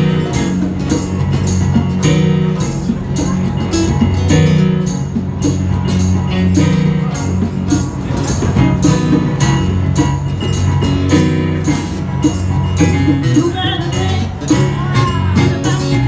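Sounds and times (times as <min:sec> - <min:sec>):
banjo: 0:00.0 - 0:16.0
electric keyboard: 0:00.0 - 0:16.0
jingling hand percussion: 0:00.0 - 0:16.0.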